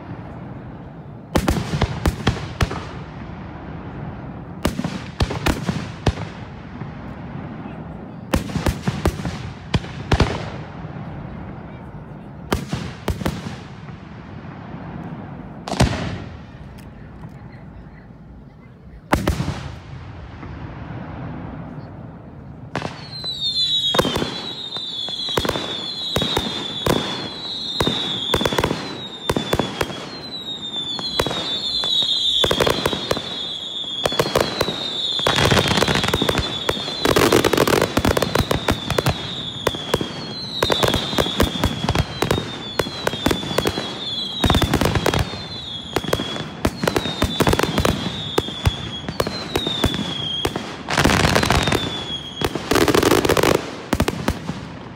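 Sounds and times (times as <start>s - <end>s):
fireworks bangs and bursts: 0.0s - 17.1s, 18.9s - 54.9s
fireworks hissing crackle: 19.0s - 54.9s
fireworks whistles: 22.7s - 54.7s.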